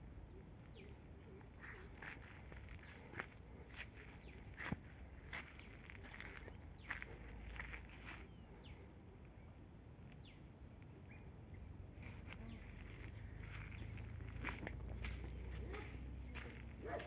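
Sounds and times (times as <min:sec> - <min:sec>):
footsteps on dry earth: 0:01.6 - 0:08.8, 0:11.9 - 0:17.0.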